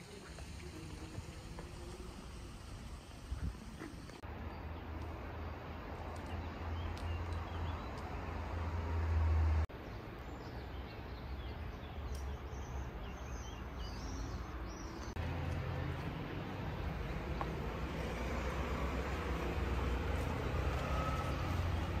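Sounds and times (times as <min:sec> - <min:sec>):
small birds chirping: 0:00.0 - 0:08.5, 0:09.7 - 0:22.0
wind rumbling on microphone: 0:01.0 - 0:04.2.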